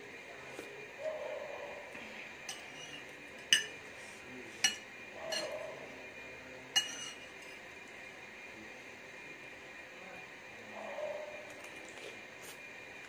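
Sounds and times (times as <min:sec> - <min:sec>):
fork clinking on a plate: 0:02.5 - 0:03.8, 0:04.6 - 0:05.6, 0:06.8 - 0:07.6.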